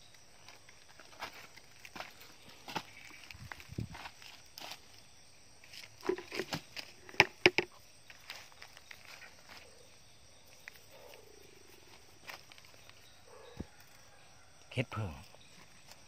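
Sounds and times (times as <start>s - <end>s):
footsteps on dry leaves: 0.4s - 5.0s, 8.1s - 9.7s.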